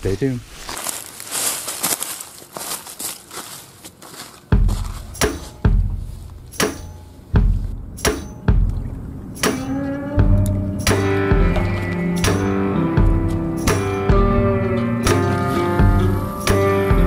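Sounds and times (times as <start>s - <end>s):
footsteps on dry leaves: 0.0s - 7.6s, 15.1s - 17.0s
music with heavy drum hits: 4.6s - 17.0s.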